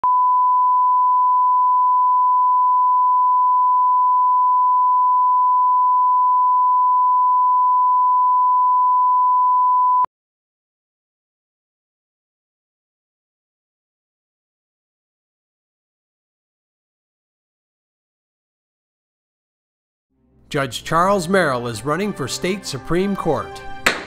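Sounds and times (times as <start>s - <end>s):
steady reference tone beep: 0.0s - 10.1s.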